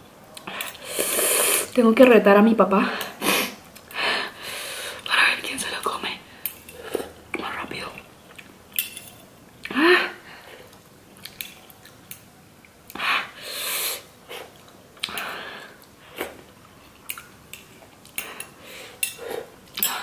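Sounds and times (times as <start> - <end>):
heavy hissing breaths: 0.4 - 1.8, 3.0 - 5.1, 12.9 - 14.5, 18.2 - 20.0.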